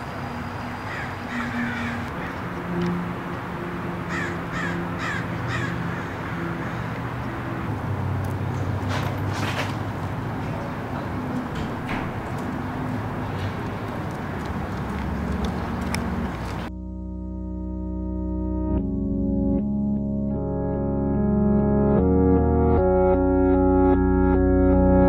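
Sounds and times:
birds calling: 0:00.0 - 0:08.9, 0:10.5 - 0:16.7.

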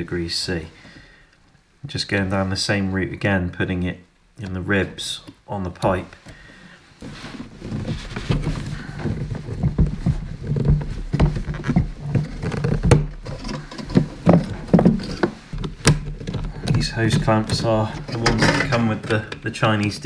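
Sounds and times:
knocks and clicks of handling: 0:05.2 - 0:20.0.

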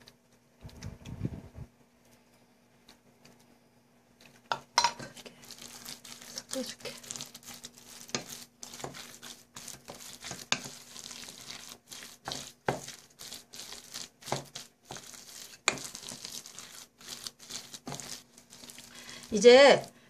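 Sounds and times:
spoon squishing and scraping food: 0:04.2 - 0:20.0.

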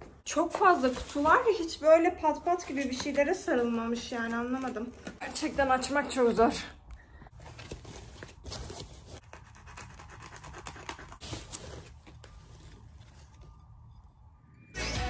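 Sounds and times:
cardboard box being opened: 0:07.4 - 0:09.2
music: 0:14.0 - 0:15.0.

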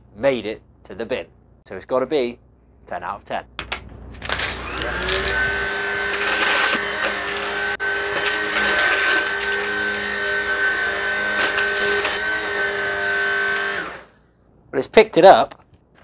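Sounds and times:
vacuum motor whine: 0:04.2 - 0:14.1.

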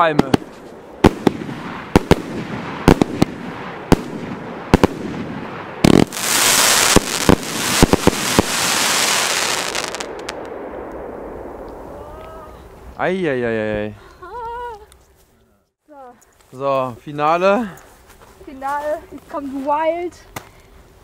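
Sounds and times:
firework shots and bursts: 0:00.0 - 0:11.1
crackling hiss of bursting stars: 0:00.0 - 0:13.7.

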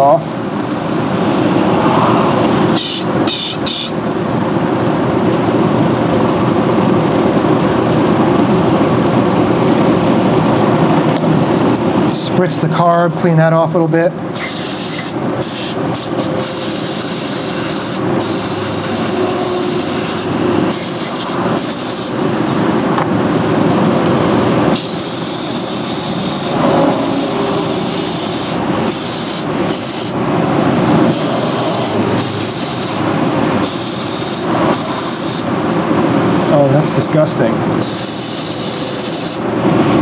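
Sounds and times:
shop fan rushing: 0:00.0 - 0:40.0
aerosol spray hissing: 0:14.4 - 0:22.1, 0:24.8 - 0:30.2, 0:31.1 - 0:33.0, 0:33.6 - 0:35.5, 0:37.8 - 0:39.4.

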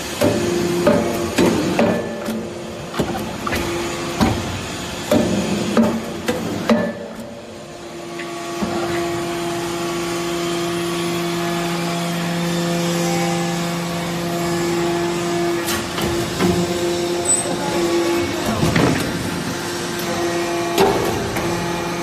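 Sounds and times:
sharp metallic knocks: 0:05.1 - 0:07.1.

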